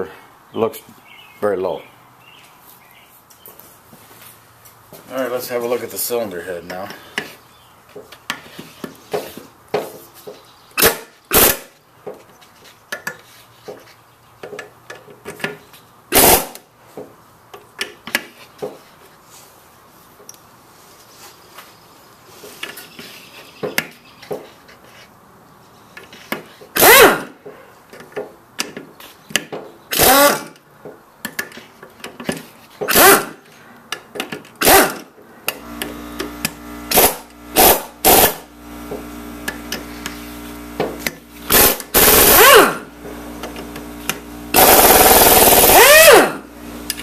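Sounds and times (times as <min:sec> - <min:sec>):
impact driver bursts: 0:10.8 - 0:11.8, 0:16.1 - 0:16.6, 0:26.7 - 0:27.4, 0:29.9 - 0:30.6, 0:32.9 - 0:33.4, 0:34.6 - 0:38.5, 0:41.0 - 0:42.9, 0:44.1 - 0:46.5.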